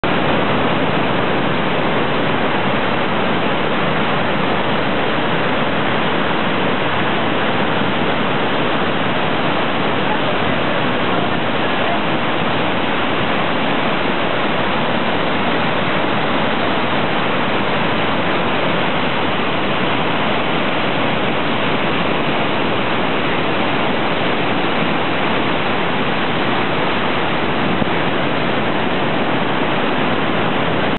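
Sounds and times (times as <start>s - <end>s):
waterfall and rapids rushing: 0.0s - 30.9s.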